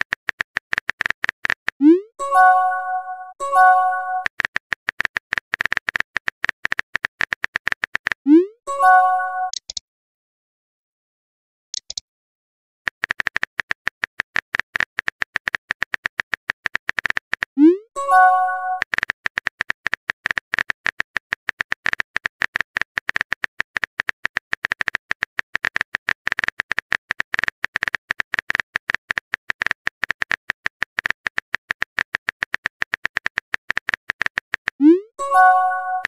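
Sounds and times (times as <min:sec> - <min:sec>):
notification chime: 0:02.2 - 0:04.2, 0:08.7 - 0:09.6, 0:18.0 - 0:18.8, 0:34.9 - 0:36.0
phone keyboard typing clicks: 0:03.5 - 0:08.2, 0:11.8 - 0:12.0, 0:12.9 - 0:36.0.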